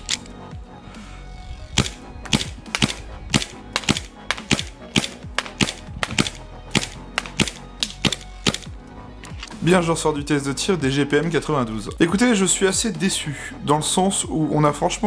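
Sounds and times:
pistol slide clacks: 0.0s - 0.3s, 1.8s - 9.5s
airsoft pistol shots: 1.8s - 8.7s.

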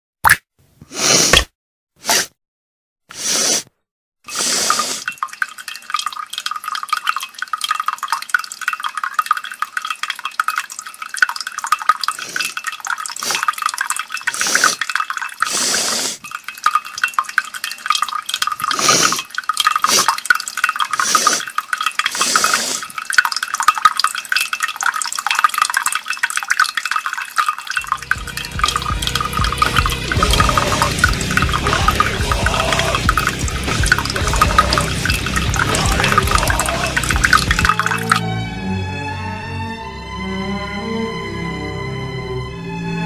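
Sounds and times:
wet liquid splattering: 28.2s - 38.2s.

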